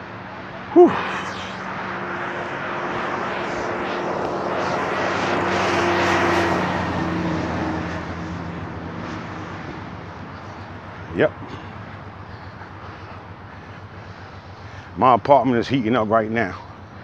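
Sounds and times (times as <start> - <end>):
passing engine hum: 0.0 - 17.0.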